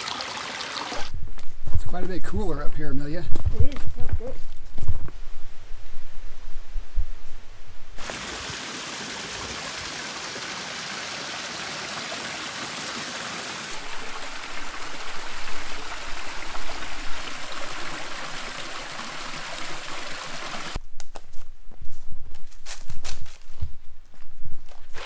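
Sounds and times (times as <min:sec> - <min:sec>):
small waterfall trickling: 0:00.0 - 0:01.1, 0:08.0 - 0:20.8.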